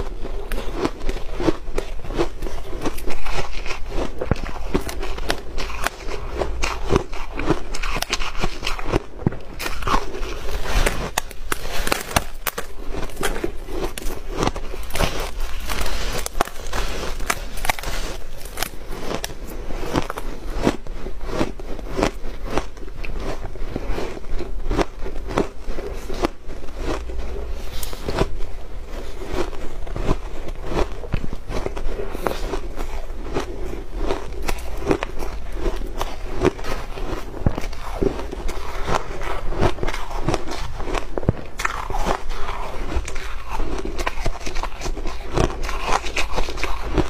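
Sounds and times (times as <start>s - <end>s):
crunching shaved ice: 0.0s - 47.0s.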